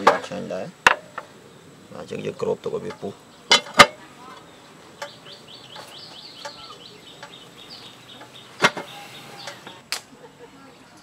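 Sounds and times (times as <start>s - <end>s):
bird chirping: 0.0s - 11.0s.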